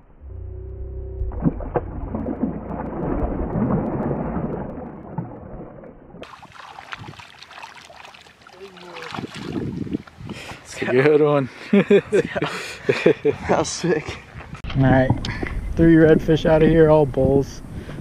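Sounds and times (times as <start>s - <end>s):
water splashing and sloshing: 1.1s - 11.7s.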